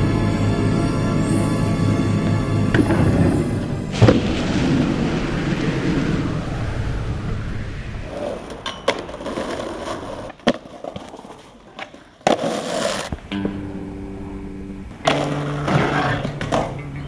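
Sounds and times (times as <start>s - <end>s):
skateboard wheels rolling on pavement: 7.9s - 17.0s
skateboard grinding on metal rail: 8.1s - 13.5s, 15.0s - 17.0s
skateboard clacks: 8.1s - 13.7s, 14.9s - 17.0s.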